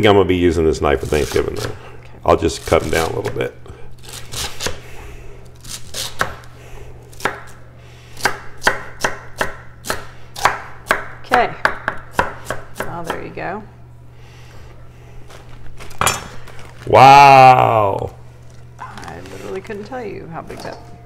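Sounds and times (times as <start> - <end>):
knife chopping celery on board: 8.2 - 13.2.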